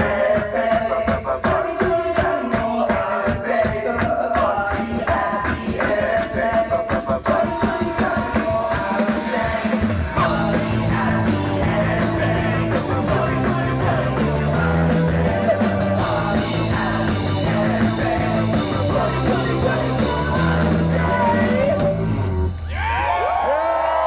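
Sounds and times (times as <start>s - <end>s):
indie rock band playing: 4.8s - 22.8s.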